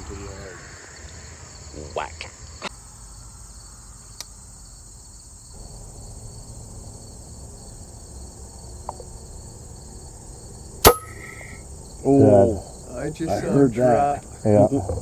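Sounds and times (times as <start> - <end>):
insects chirring: 0.0 - 15.0
air rifle shot: 10.8 - 11.6.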